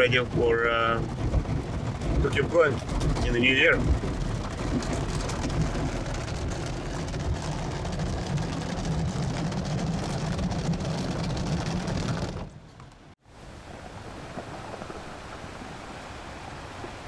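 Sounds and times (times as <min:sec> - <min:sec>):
heavy low rumble: 0:00.0 - 0:13.1.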